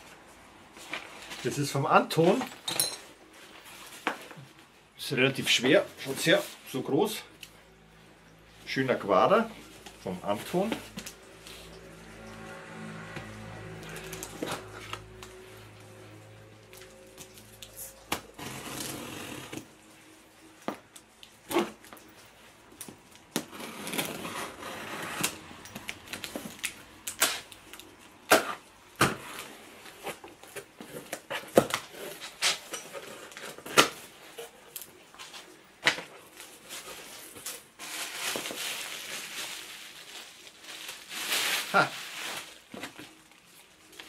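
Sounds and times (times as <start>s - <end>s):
packing tape tearing: 16.7s - 19.7s, 23.1s - 34.0s.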